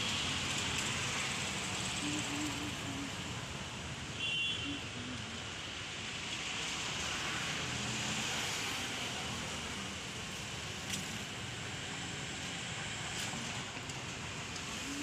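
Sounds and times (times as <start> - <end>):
distant road traffic hum: 0.0 - 15.0.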